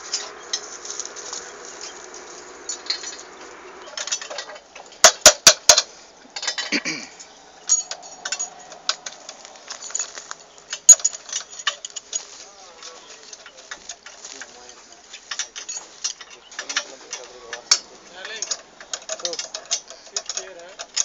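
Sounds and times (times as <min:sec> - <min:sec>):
metal clinking and tapping: 0:00.0 - 0:21.0.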